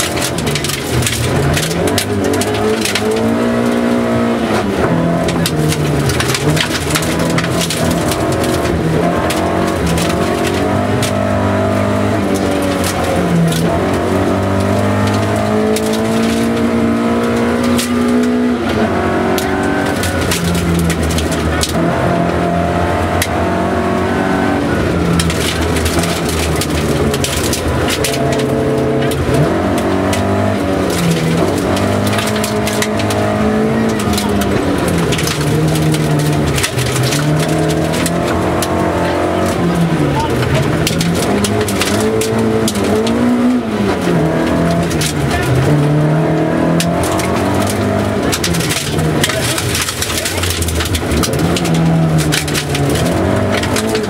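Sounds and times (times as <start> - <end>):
gravel rattling against underbody: 0.0 - 54.0
rally car engine revving through gears: 0.0 - 54.0.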